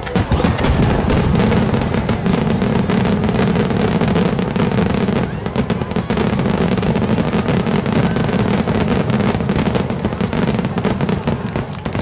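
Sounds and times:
fireworks booming and crackling: 0.0 - 12.0.

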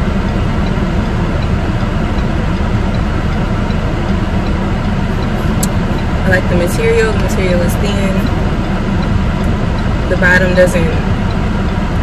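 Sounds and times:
car cabin engine and road rumble: 0.0 - 12.0
faint regular ticking: 0.6 - 12.0.

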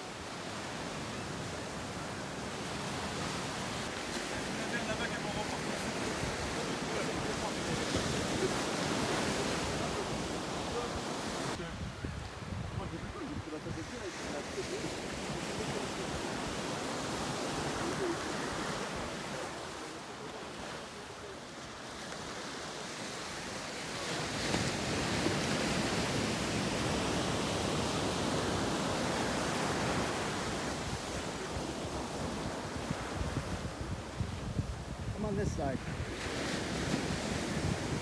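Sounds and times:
ocean surf on a beach: 0.0 - 38.0.

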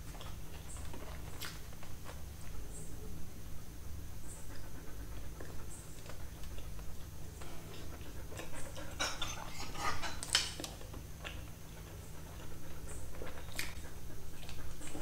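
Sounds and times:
close chewing: 0.0 - 2.6, 4.4 - 15.0
low steady hum: 0.0 - 15.0
wet lip smacks and mouth clicks: 0.1 - 2.2, 13.1 - 15.0.

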